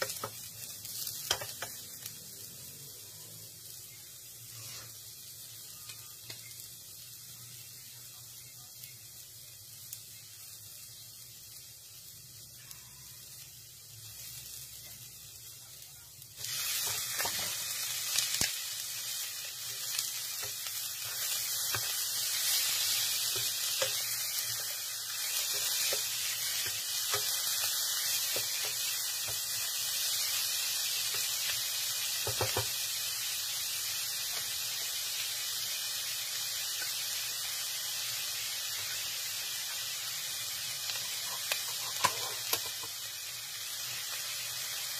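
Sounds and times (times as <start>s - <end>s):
food sizzling in oil: 0.0s - 44.9s
utensil stirring in pan: 16.4s - 32.8s, 40.7s - 43.1s.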